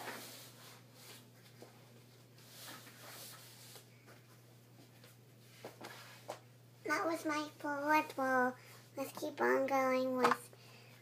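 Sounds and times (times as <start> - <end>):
rustling of clothes and bedding: 0.0 - 6.5
low room hum: 0.0 - 11.0.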